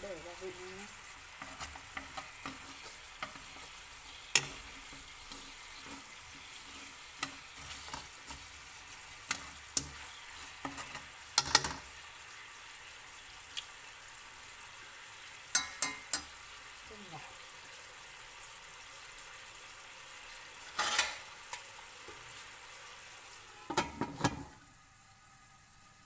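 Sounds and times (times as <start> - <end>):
chicken wings sizzling in wok: 0.0 - 26.0
utensil clacking against pan: 1.4 - 8.6, 10.6 - 11.9, 15.5 - 16.3.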